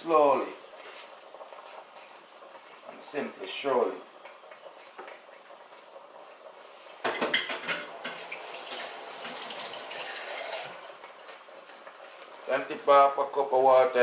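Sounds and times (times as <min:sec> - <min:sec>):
cup and dishes clinking: 0:07.0 - 0:08.8
water running from tap: 0:07.3 - 0:11.7.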